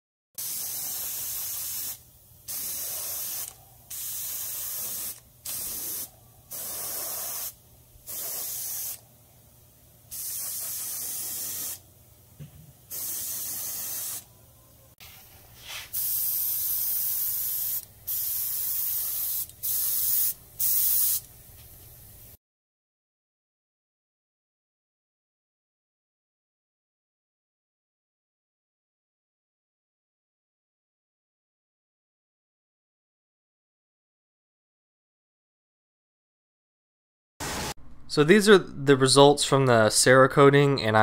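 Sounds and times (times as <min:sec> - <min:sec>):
airbrush hissing in short bursts: 0:00.4 - 0:09.0, 0:10.1 - 0:11.8, 0:12.9 - 0:14.3, 0:15.5 - 0:21.3.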